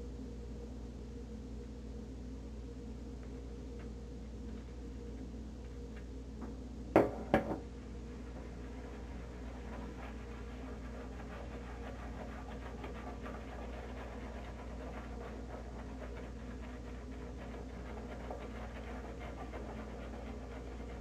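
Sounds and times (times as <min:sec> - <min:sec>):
shaving brush swishing on stubble: 0:08.5 - 0:21.0.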